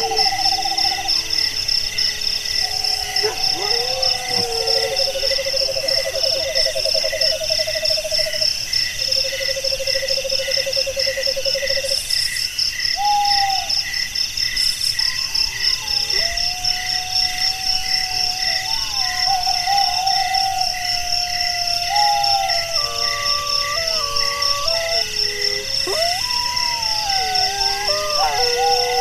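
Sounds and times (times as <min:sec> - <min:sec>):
crickets chirring: 0:00.0 - 0:29.0
long low animal trills: 0:15.5 - 0:29.0.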